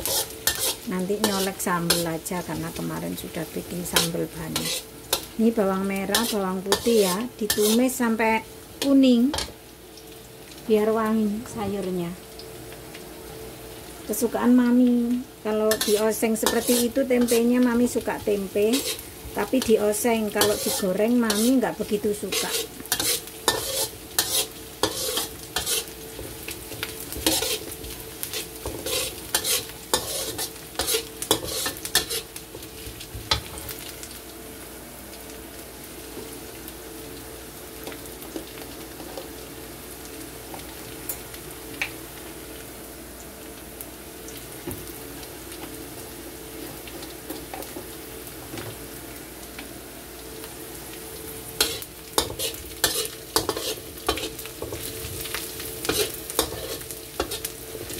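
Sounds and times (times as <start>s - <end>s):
spatula scraping wok: 0.0s - 5.4s, 6.0s - 8.0s, 15.7s - 33.8s, 51.6s - 57.9s
shallots and garlic sizzling in wok: 0.0s - 57.9s.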